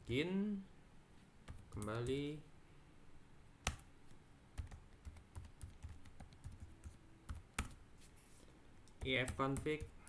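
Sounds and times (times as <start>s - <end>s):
keyboard typing: 1.4s - 2.2s, 4.6s - 7.8s.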